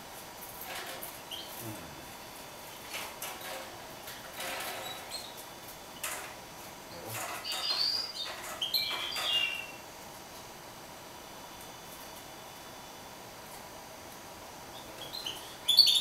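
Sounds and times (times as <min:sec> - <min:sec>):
finch chirping: 0:07.4 - 0:09.8, 0:14.7 - 0:16.0.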